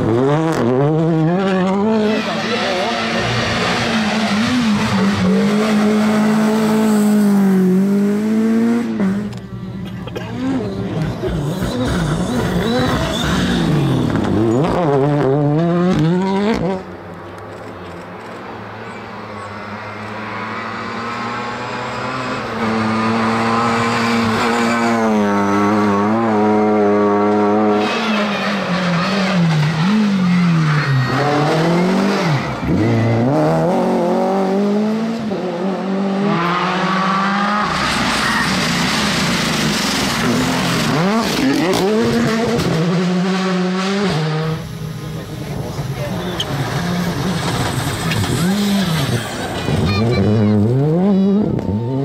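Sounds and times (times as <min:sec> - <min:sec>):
car approaching at high revs: 0:00.0 - 0:52.0
rally car engine revving: 0:00.0 - 0:52.0.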